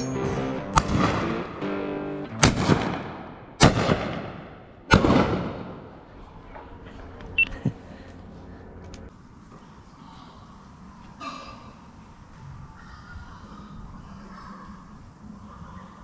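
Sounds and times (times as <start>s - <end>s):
background music: 0.0s - 3.4s
shotgun shots echoing: 0.2s - 1.6s, 2.4s - 5.9s.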